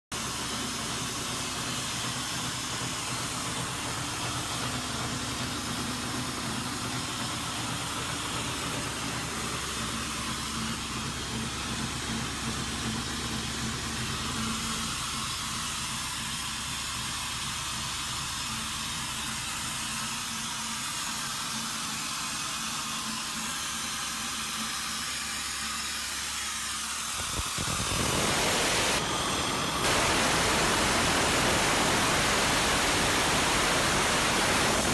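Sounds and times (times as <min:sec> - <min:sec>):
air compressor hum: 0:00.1 - 0:34.9
strong hiss of air: 0:27.1 - 0:34.9
steady rush of air: 0:27.2 - 0:34.9.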